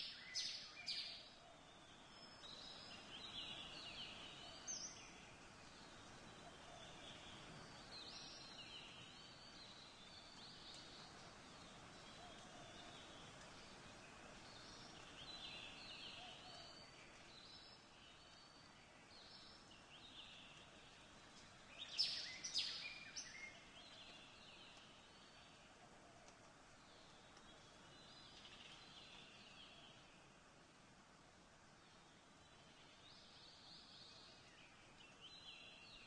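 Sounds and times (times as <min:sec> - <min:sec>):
soft background hiss: 0:00.0 - 0:36.0.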